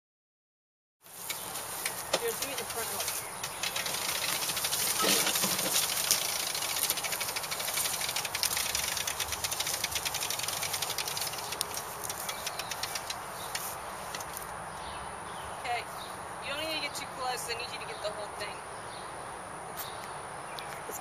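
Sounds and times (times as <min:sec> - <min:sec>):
lawn mower running: 0:01.1 - 0:13.7.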